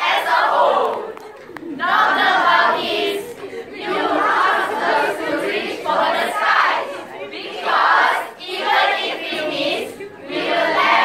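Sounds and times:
group reciting in unison: 0.0s - 11.0s.

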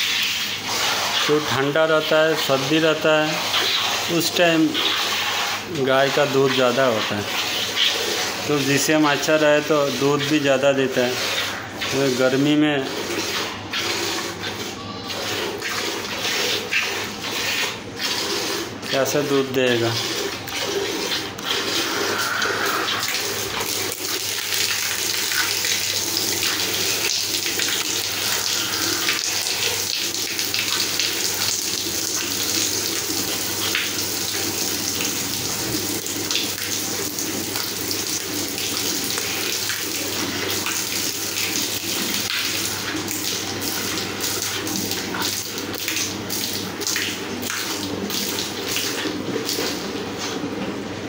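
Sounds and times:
milk squirting into metal bucket: 0.0s - 50.4s.

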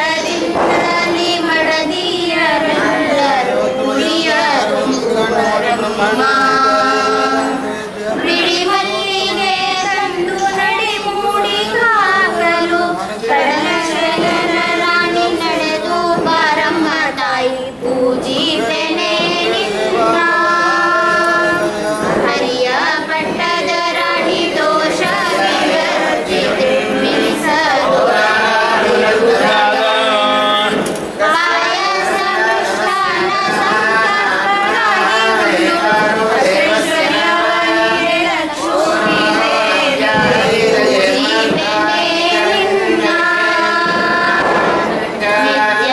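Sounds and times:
people singing devotional song: 0.0s - 45.9s.

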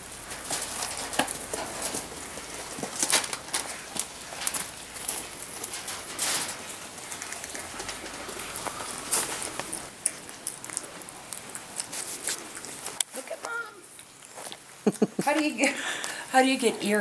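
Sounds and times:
rustling of dry straw: 0.0s - 13.0s.

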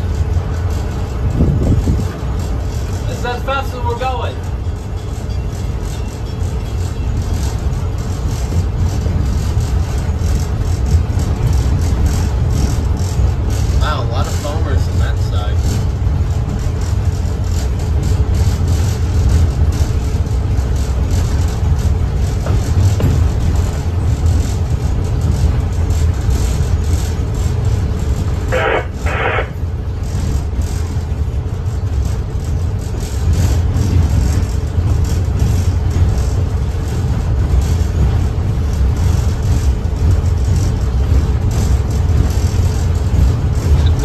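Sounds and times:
locomotive engine rumble: 0.0s - 44.0s
rattling and clatter: 0.0s - 44.0s.

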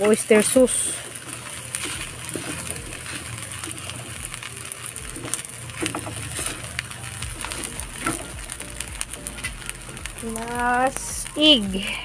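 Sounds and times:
spatula scraping metal pan: 0.0s - 10.4s.

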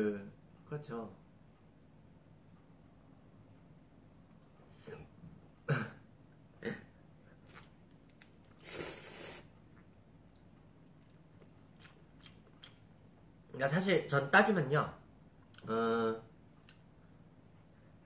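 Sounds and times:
person coughing: 4.8s - 6.0s
man slurping noodles: 8.6s - 9.5s.

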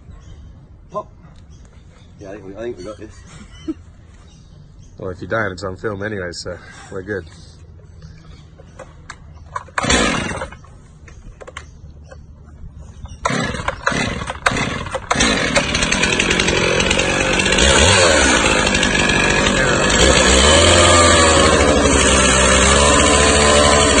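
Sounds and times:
chainsaw engine running and revving: 9.8s - 10.6s, 13.2s - 24.0s.

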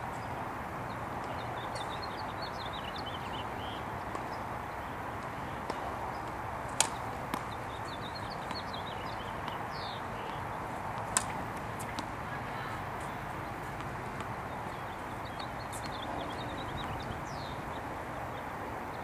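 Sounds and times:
small birds chirping: 0.1s - 19.0s.

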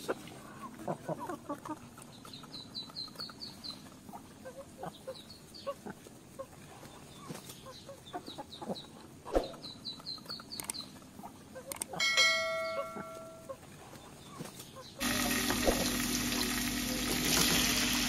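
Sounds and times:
hens clucking: 0.0s - 18.0s
bell-like ring: 12.0s - 13.5s.

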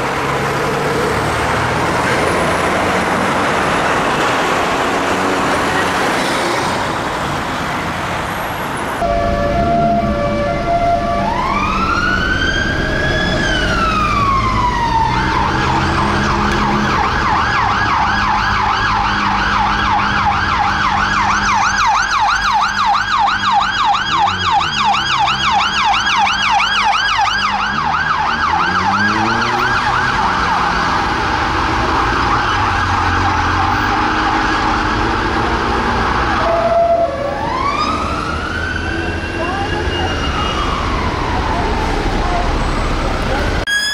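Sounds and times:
traffic noise: 0.0s - 43.9s
siren wailing and yelping: 9.0s - 42.8s, 43.7s - 43.9s.

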